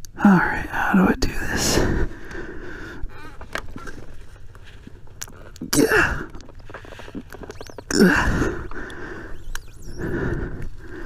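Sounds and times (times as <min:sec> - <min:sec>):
knocks and rustling of brush: 0:03.3 - 0:05.6
man grunting and blowing out: 0:07.9 - 0:08.7.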